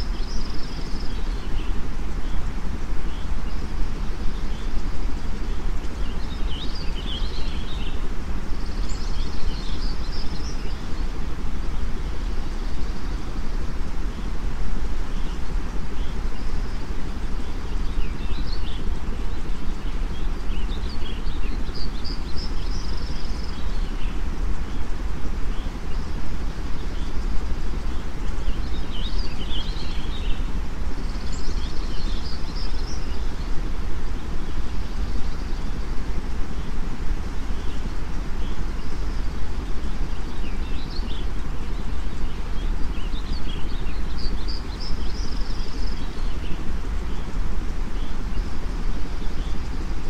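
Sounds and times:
small birds chirping: 0.0s - 50.0s
white noise rush: 0.0s - 50.0s.

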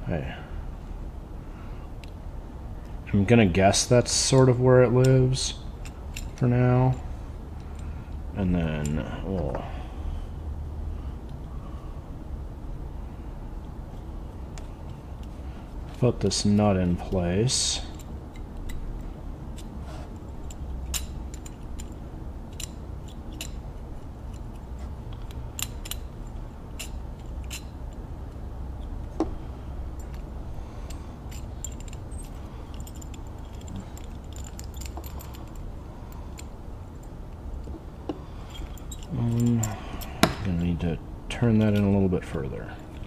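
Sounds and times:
steady low hum: 0.0s - 43.0s
small metal parts clicking: 5.8s - 7.0s, 17.8s - 28.0s, 30.0s - 37.7s, 38.4s - 40.2s.

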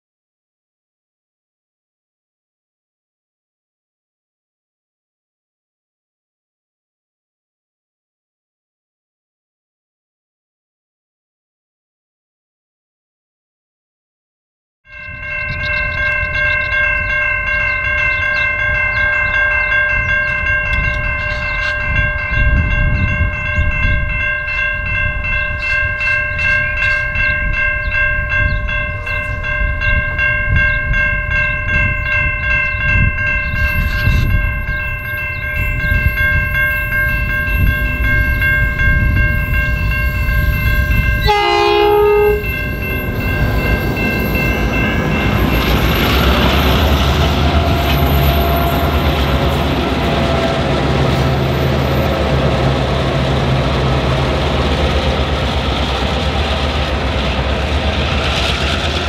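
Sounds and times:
level crossing bell ringing: 14.9s - 46.0s
diesel locomotive engines rumbling: 15.0s - 59.0s
train horn blast: 41.2s - 42.7s.

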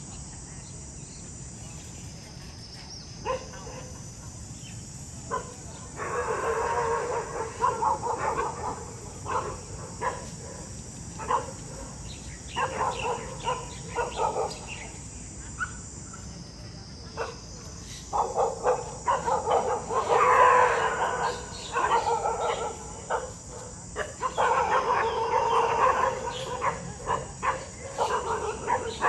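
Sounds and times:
dogs barking: 3.2s - 4.1s, 5.3s - 14.9s, 18.1s - 29.0s.

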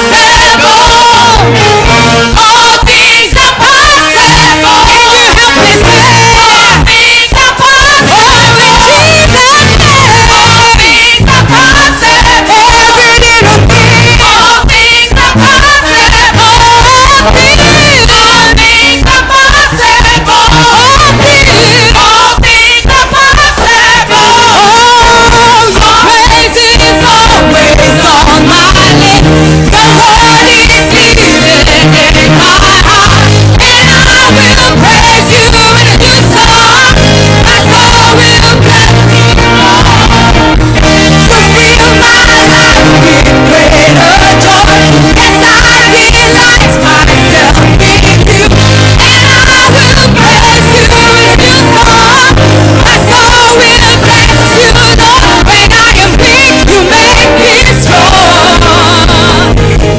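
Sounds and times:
congregation singing: 0.0s - 59.9s
woman singing into microphone: 0.0s - 59.9s.

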